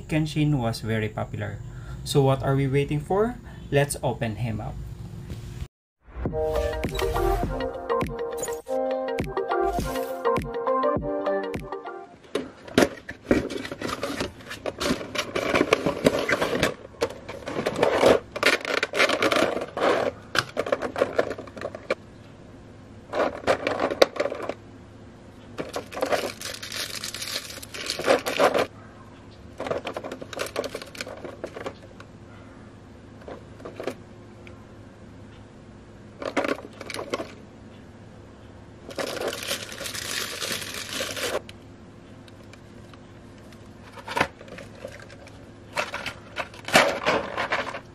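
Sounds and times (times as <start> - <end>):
plastic packaging crinkling: 25.6 - 28.7, 29.8 - 31.6, 38.9 - 41.4.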